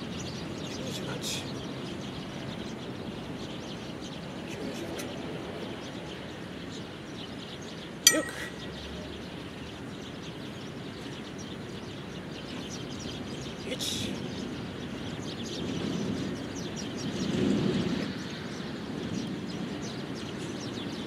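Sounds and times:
outdoor background noise: 0:00.0 - 0:21.0
metallic clink: 0:08.1 - 0:08.6.

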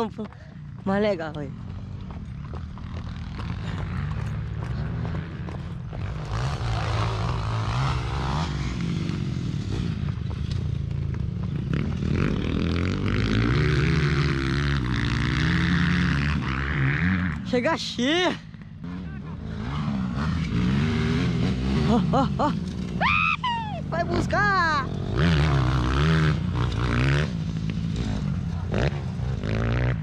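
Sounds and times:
motorcycle engine revving: 0:00.0 - 0:30.0.

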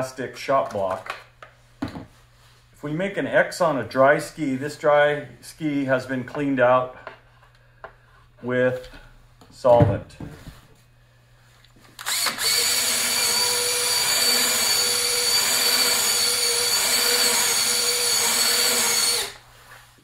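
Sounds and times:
cordless drill whining: 0:12.0 - 0:19.5.

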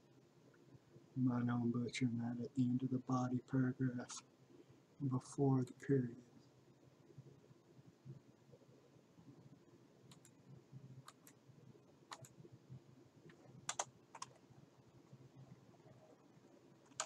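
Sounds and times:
low steady hum: 0:00.0 - 0:17.0
computer mouse clicks: 0:10.1 - 0:10.4, 0:11.0 - 0:11.4, 0:12.1 - 0:12.4, 0:13.2 - 0:14.4.

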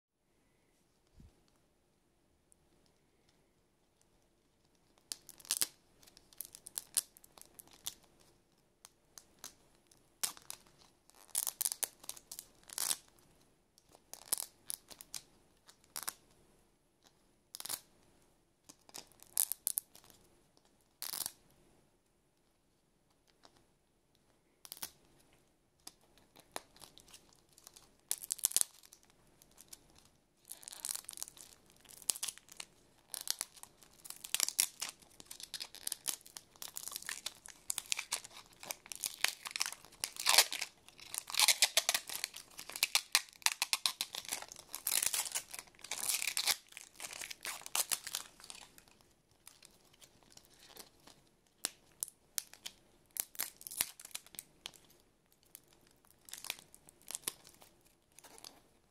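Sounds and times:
plastic film tearing and crinkling: 0:30.5 - 0:51.8, 0:52.4 - 0:54.8.

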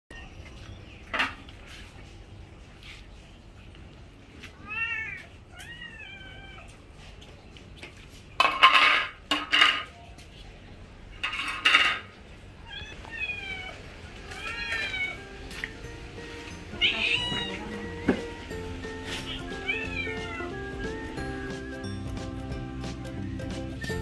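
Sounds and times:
cats meowing: 0:04.4 - 0:06.9, 0:12.6 - 0:15.4, 0:16.7 - 0:18.3, 0:19.0 - 0:21.0.

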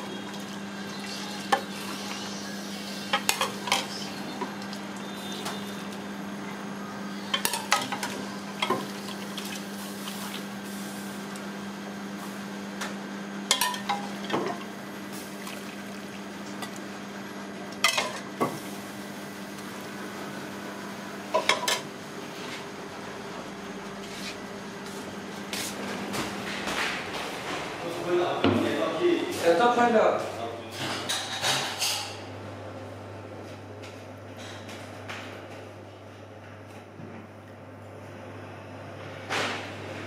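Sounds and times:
steel ladle clanking on pots: 0:13.5 - 0:14.1.

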